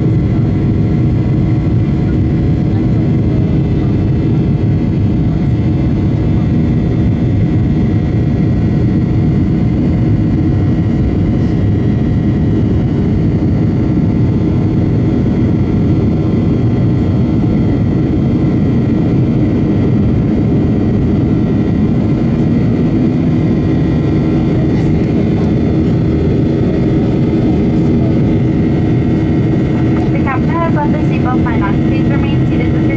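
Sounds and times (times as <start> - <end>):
jet engine cabin drone: 0.0 - 32.9
steady tones: 28.3 - 32.9.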